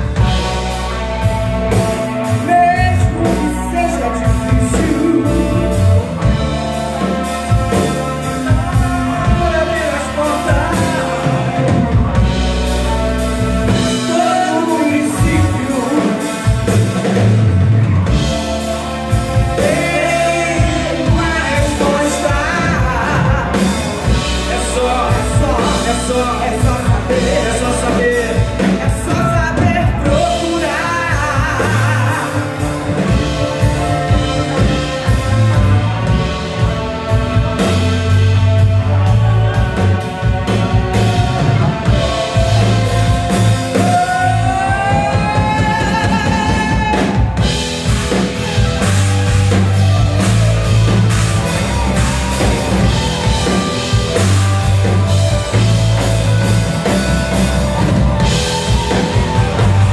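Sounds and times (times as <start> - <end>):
drum kit: 0.0 - 59.9
electric bass: 0.0 - 59.9
electric guitars: 0.0 - 59.9.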